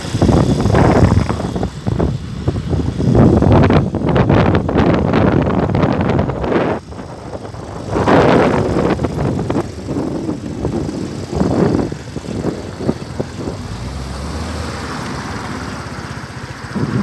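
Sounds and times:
motorcycle engine running: 0.0s - 17.0s
wind buffeting microphone: 0.0s - 17.0s.

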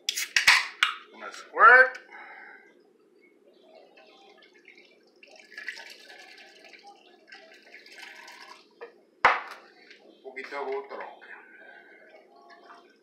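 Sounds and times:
soda pouring and fizzing: 4.3s - 8.8s
can knocking on countertop: 9.3s - 9.6s.

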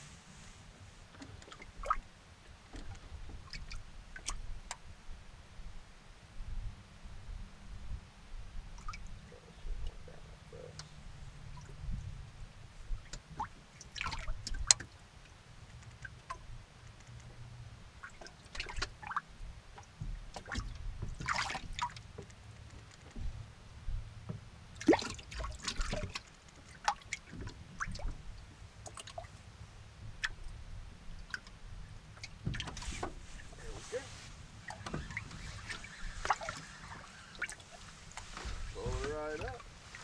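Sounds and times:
low steady rumble: 0.0s - 40.0s
water lapping against boat hull: 0.4s - 4.9s, 8.7s - 12.2s, 12.8s - 23.5s, 24.2s - 40.0s
small ticks: 15.7s - 17.3s
water splashing: 20.4s - 22.2s, 24.8s - 28.2s, 32.1s - 40.0s.

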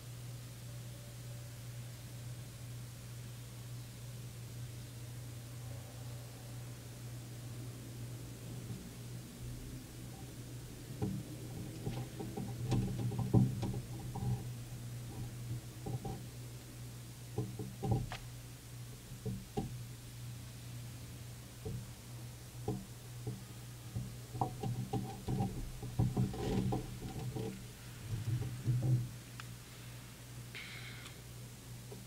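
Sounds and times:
steady low hum: 0.0s - 32.0s
soft knocks and clicks: 10.9s - 16.3s, 17.3s - 18.3s, 22.6s - 29.2s.

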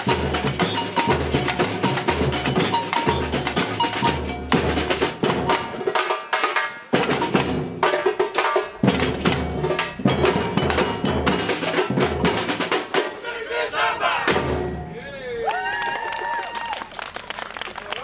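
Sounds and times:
small hand percussion and bells: 0.0s - 12.8s
snare drums: 0.0s - 13.3s, 14.2s - 14.9s.

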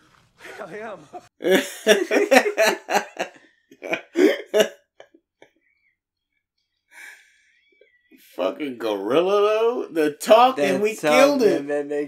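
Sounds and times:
hearty laughter: 0.4s - 5.5s.

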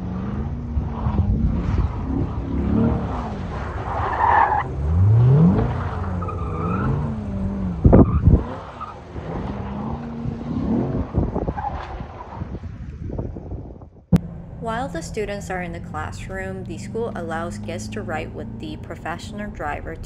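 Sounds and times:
car engine revving: 0.0s - 13.2s, 14.1s - 20.0s
tyres skidding: 0.0s - 13.3s.

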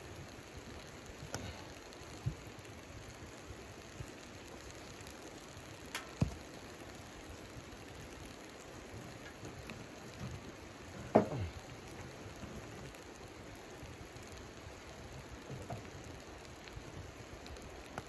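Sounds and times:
wood fire crackling: 0.0s - 18.0s
wood knocking and scraping in stove: 10.2s - 11.6s.

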